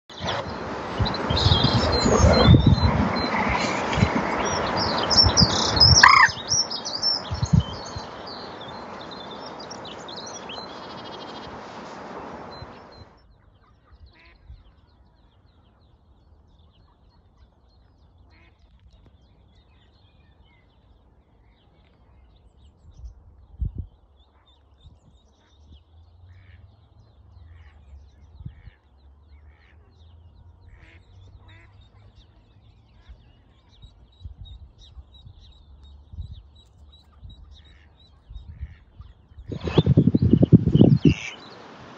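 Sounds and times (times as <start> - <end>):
steady rushing noise: 0.1 - 13.1, 39.5 - 41.9
small birds chirping: 0.1 - 14.7, 16.2 - 41.9
duck quacking: 3.2 - 6.4, 40.8 - 41.5.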